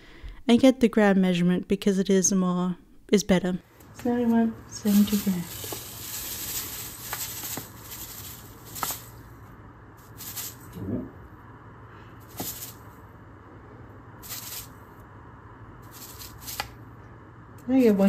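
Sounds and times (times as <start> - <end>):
sugar pouring into glass bowl: 4.9 - 9.2.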